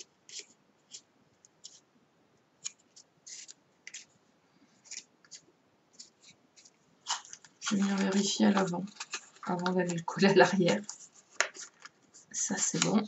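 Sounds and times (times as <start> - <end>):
cardstock rustling: 2.6 - 4.1, 4.8 - 13.0.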